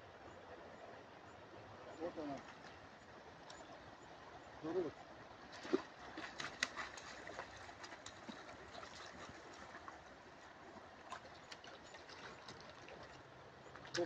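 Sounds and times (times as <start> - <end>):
fish splashing in water: 5.6 - 9.9.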